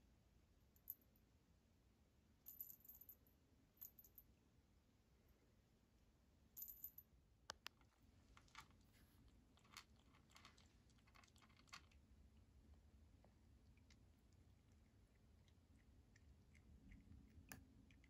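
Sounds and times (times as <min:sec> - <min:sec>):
kitten crunching dry kibble: 0:07.7 - 0:12.6, 0:13.4 - 0:18.0
kibble rattle: 0:07.8 - 0:12.1.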